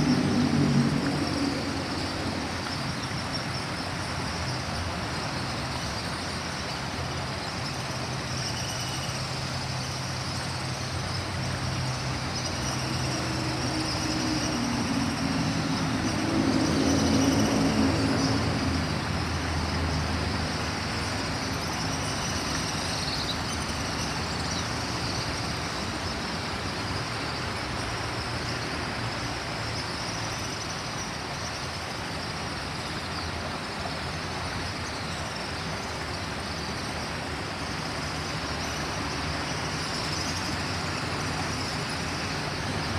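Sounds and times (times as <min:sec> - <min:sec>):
vehicle engine passing: 0:00.0 - 0:02.6
river water churning over rocks: 0:00.0 - 0:42.9.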